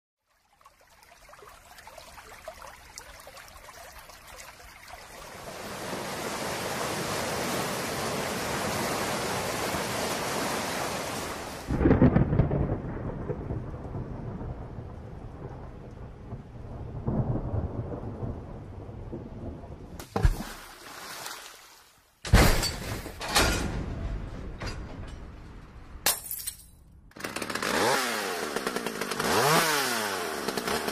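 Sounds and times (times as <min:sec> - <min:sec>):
heavy rain hiss: 0:05.3 - 0:11.8
rumbling thunder: 0:11.7 - 0:20.0
sharp thunder crack: 0:11.7 - 0:20.0
clattering crashes: 0:22.3 - 0:26.9.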